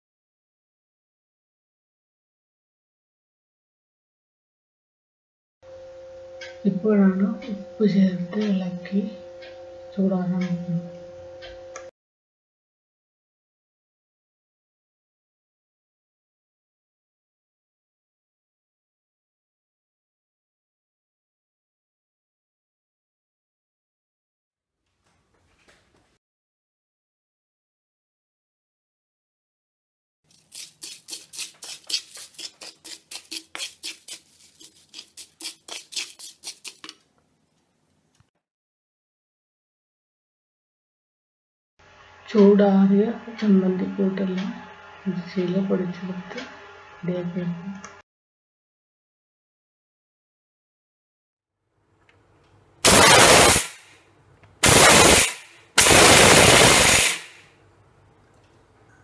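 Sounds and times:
mixer grinder grinding: 30.3s - 37.0s
spoon scraping a pan: 30.3s - 37.0s.

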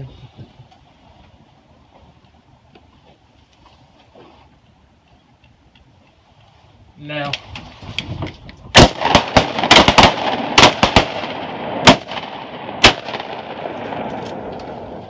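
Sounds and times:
shotguns firing: 8.8s - 14.5s
gunshot echo: 8.8s - 15.0s.

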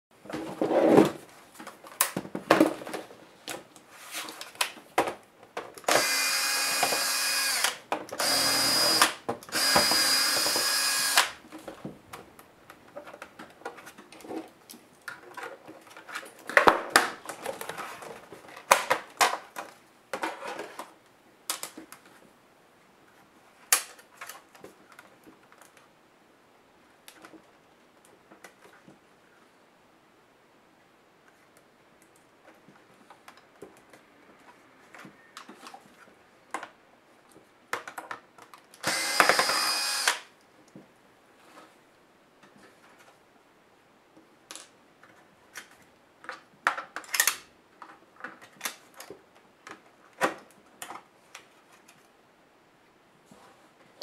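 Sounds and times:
electric screwdriver running: 5.9s - 11.3s, 38.8s - 40.2s.

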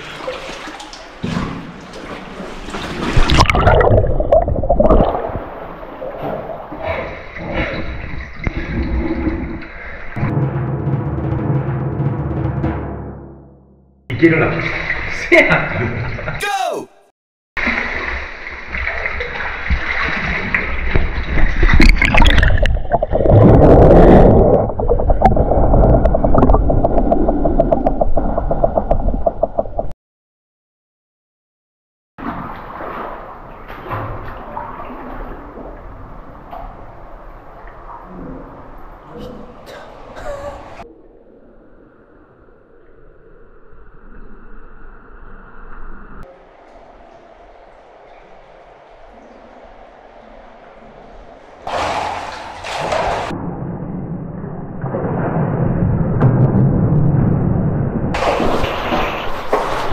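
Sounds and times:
water splashing and gurgling: 0.0s - 10.2s, 17.6s - 29.8s, 46.2s - 57.4s, 58.0s - 59.9s.

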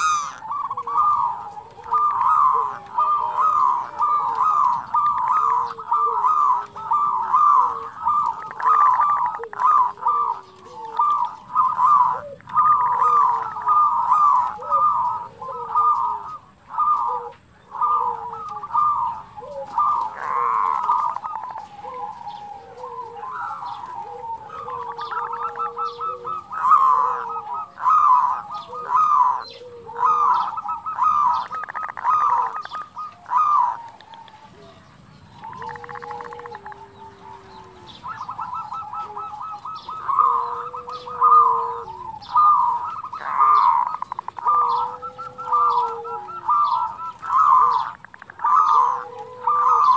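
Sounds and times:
doves cooing: 0.0s - 49.9s
rapid rattling bird trills: 0.0s - 49.9s.

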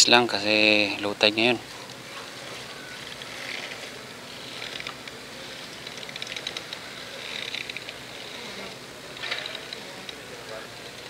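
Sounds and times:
steady harbour hiss: 0.0s - 11.0s
fishing reel ticking: 2.7s - 10.2s.

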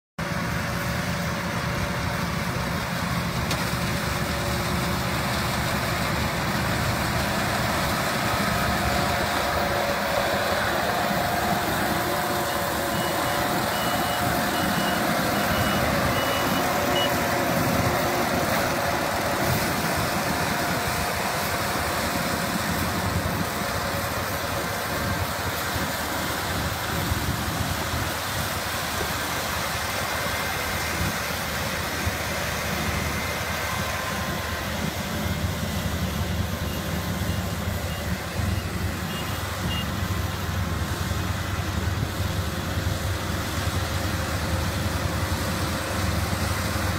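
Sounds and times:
combine harvester engine droning: 0.2s - 46.9s
faint beeps: 12.9s - 17.2s.

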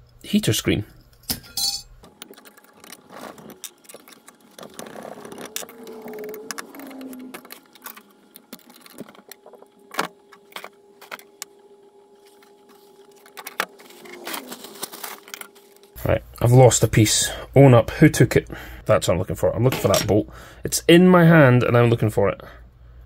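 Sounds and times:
small metal parts clinking: 1.2s - 9.3s.

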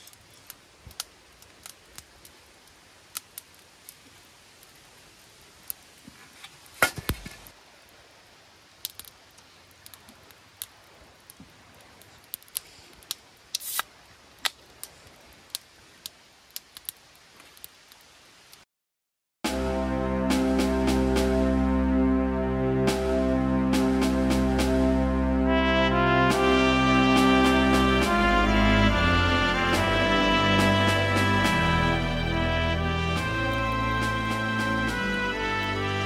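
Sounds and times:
faint hiss: 0.0s - 18.7s.

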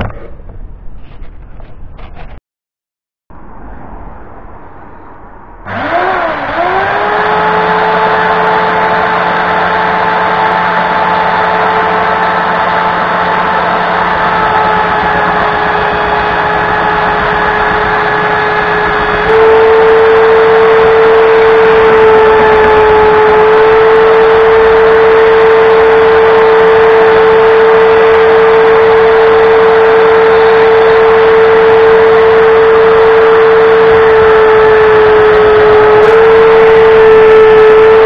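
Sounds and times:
belt sander motor whine: 5.7s - 38.0s.

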